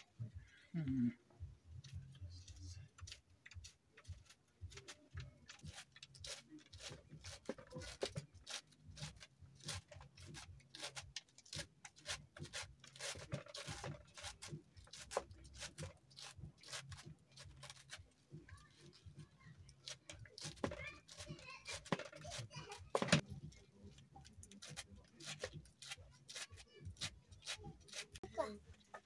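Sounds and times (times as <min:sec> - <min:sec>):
knife slicing leafy greens: 0:03.1 - 0:18.0, 0:19.8 - 0:23.3, 0:24.2 - 0:28.2.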